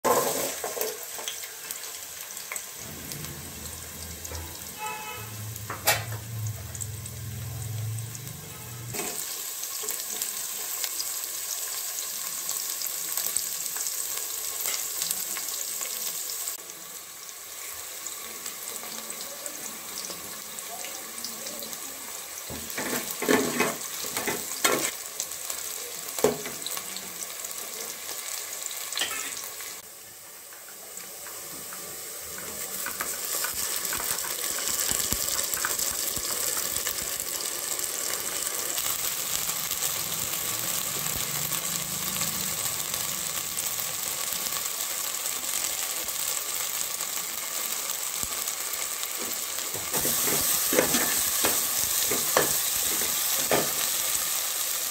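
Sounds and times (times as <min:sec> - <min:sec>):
onions sizzling in hot oil: 0:00.0 - 0:54.9.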